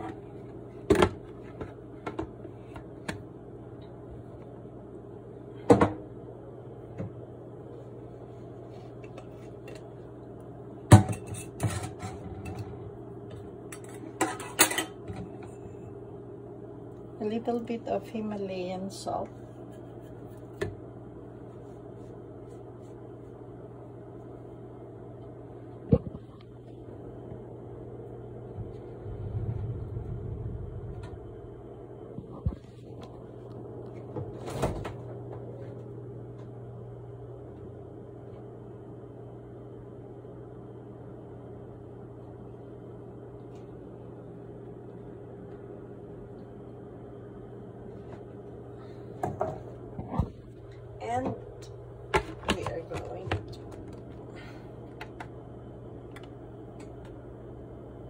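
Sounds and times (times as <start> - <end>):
steady low hum: 0.0 - 58.0
kitchen knocks and clatters: 10.9 - 12.6, 52.1 - 53.6.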